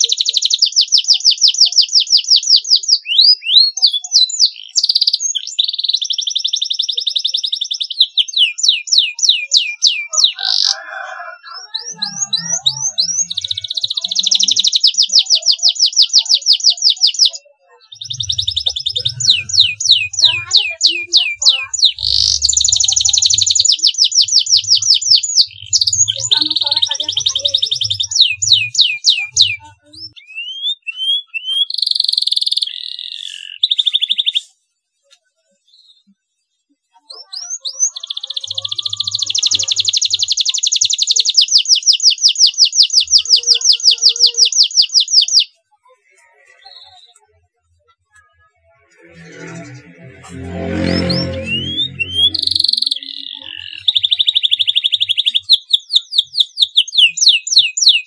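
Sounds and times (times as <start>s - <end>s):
canary singing trills: 0.0s - 34.6s, 37.1s - 58.0s.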